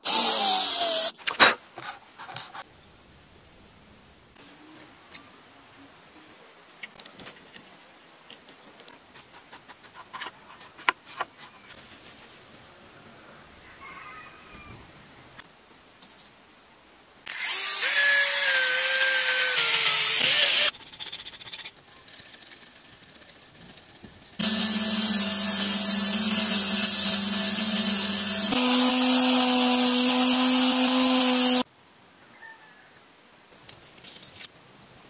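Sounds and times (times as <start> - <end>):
power tool cutting brass: 17.3 - 20.7, 24.4 - 31.6.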